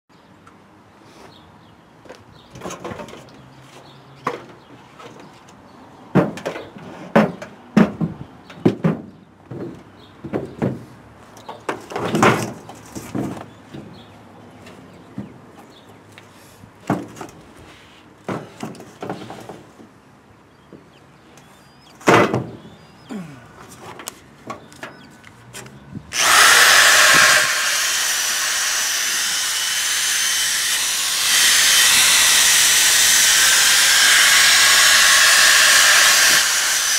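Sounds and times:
knocks clunks and rustles: 2.0s - 17.6s, 18.2s - 20.0s, 22.0s - 22.8s
power tool high whir: 26.1s - 36.9s.

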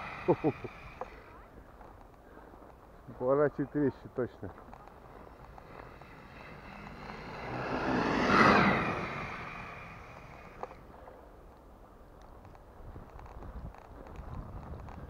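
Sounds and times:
toy car electric motor whine: 0.0s - 1.4s, 5.2s - 10.8s.

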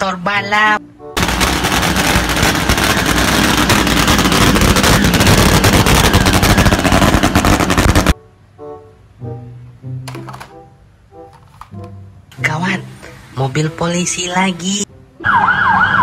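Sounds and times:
loud motorcycle engine crackling: 1.2s - 8.1s.

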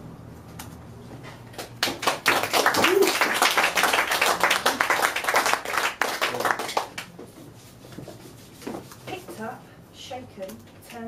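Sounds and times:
audience applauding: 1.6s - 7.1s.

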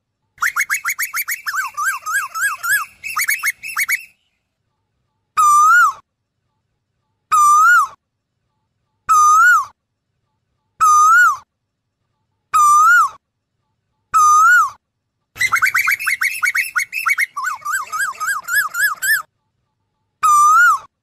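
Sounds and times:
bird whistled calls: 0.4s - 4.2s, 15.4s - 19.2s.

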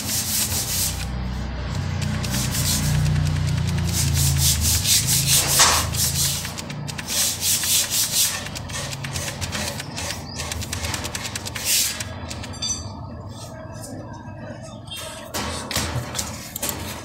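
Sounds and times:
scratchy rubbing scrapes: 0.0s - 1.2s, 2.0s - 12.1s.

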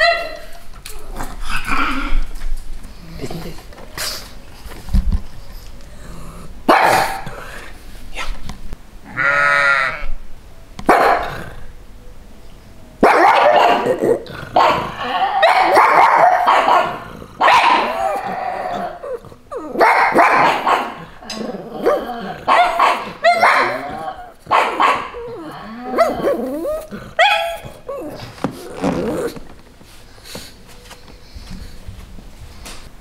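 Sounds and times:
dog barking: 0.0s - 0.4s, 6.7s - 7.3s, 10.9s - 11.4s, 13.0s - 18.2s, 19.8s - 21.1s, 21.8s - 25.2s, 27.2s - 27.7s
sheep bleating: 9.0s - 10.2s.

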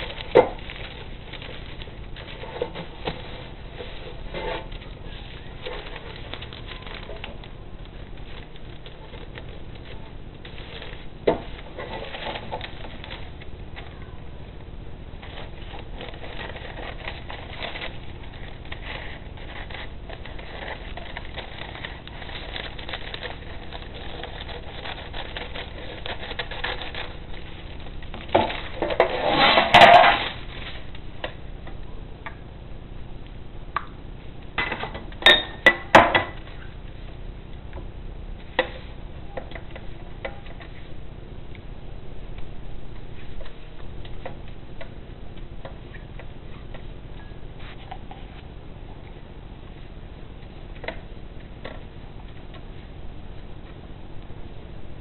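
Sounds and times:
parchment paper crinkling: 0.0s - 31.4s
scissors cutting paper: 15.2s - 29.6s.

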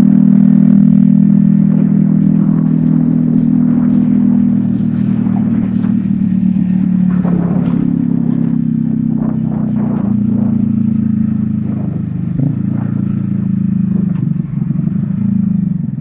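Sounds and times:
clatter from rough road: 0.0s - 16.0s
motorcycle engine running: 0.0s - 16.0s.

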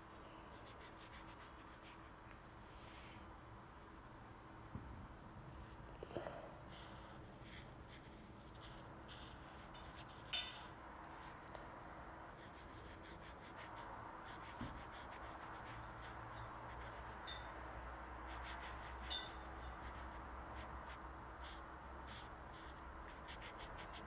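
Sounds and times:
marker rubbing on paper: 0.6s - 2.1s, 7.4s - 10.3s, 12.4s - 17.1s, 18.3s - 24.0s.

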